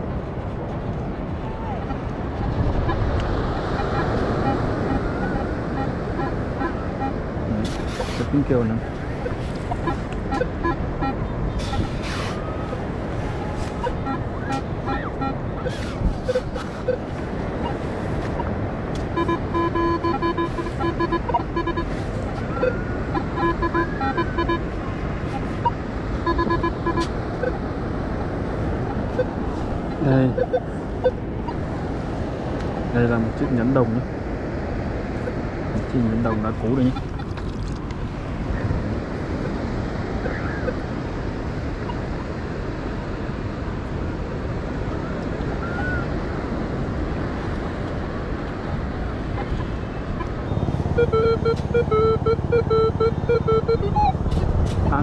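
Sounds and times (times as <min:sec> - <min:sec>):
surf: 0:00.0 - 0:55.0
wind: 0:00.0 - 0:55.0
metal detector beeping: 0:03.8 - 0:07.2, 0:09.2 - 0:27.6, 0:28.9 - 0:31.6, 0:50.2 - 0:55.0.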